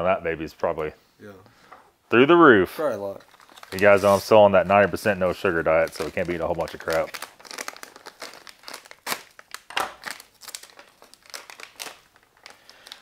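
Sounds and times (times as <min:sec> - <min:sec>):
plastic snack pouch crinkling: 0:03.1 - 0:04.3, 0:05.3 - 0:13.0.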